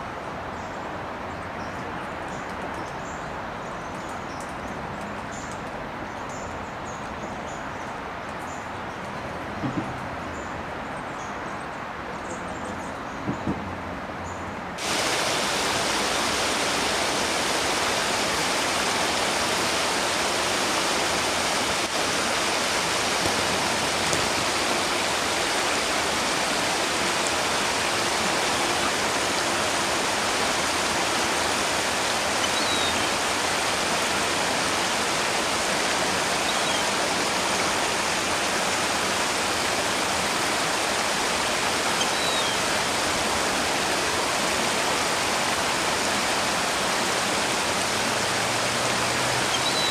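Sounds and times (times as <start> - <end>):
water rushing over rocks: 14.7 - 49.9.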